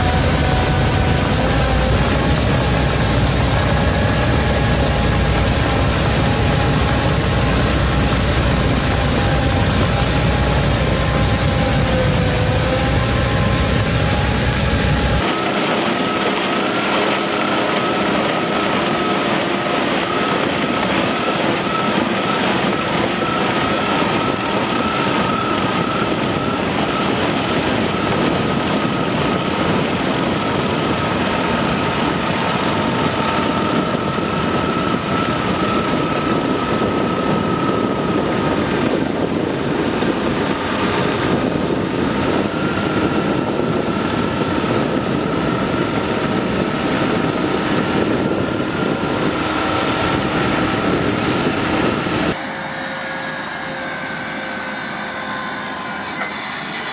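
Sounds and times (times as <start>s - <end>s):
ditch cleaner churning water: 0.0s - 15.3s, 52.3s - 56.9s
high machine whine: 0.0s - 56.9s.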